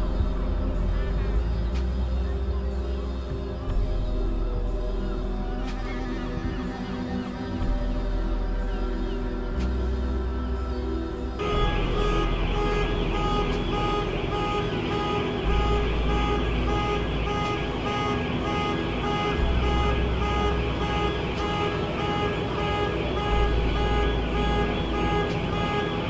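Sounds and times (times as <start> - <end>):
low rumbling: 0.0 - 26.0
diesel engine running: 9.6 - 26.0.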